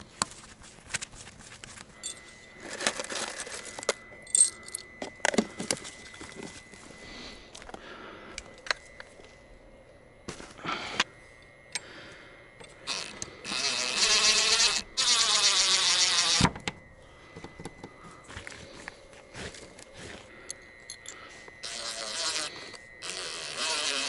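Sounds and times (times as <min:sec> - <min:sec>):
cordless power driver whirring: 0:12.6 - 0:16.8, 0:21.4 - 0:24.0.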